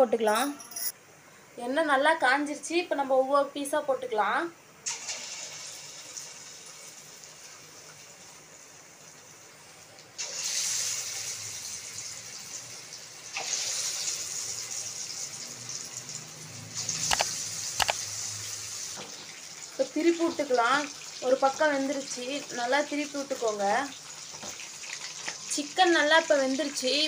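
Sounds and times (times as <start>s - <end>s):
chicken sizzling in hot oil: 4.8s - 27.0s
sharp clicks: 17.1s - 18.0s.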